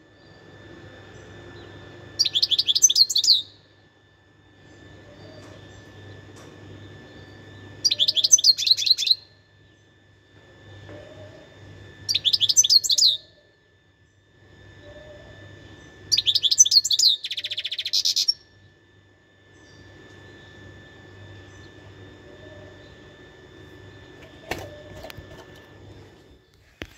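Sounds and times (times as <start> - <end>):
bird twittering song: 0.0 - 3.8, 4.6 - 10.0, 12.0 - 13.5, 14.1 - 18.8, 19.5 - 25.3.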